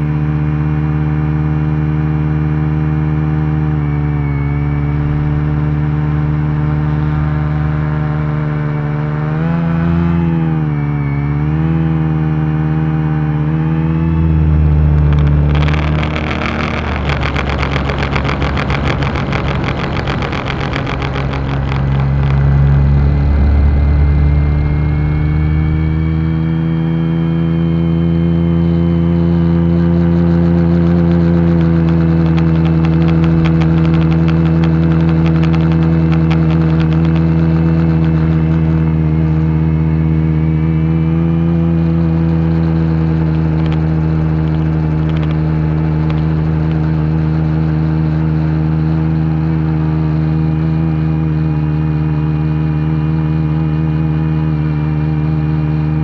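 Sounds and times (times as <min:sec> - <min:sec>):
drone propellers humming: 0:13.9 - 0:27.1, 0:29.7 - 0:40.1, 0:41.8 - 0:48.2
rushing propeller and air noise: 0:14.1 - 0:27.0, 0:29.7 - 0:39.2, 0:41.8 - 0:48.5.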